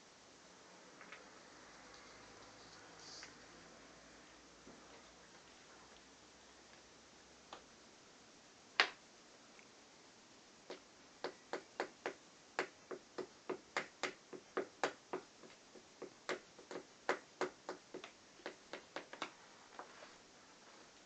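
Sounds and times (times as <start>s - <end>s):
toy hammer tapping: 11.2s - 19.3s.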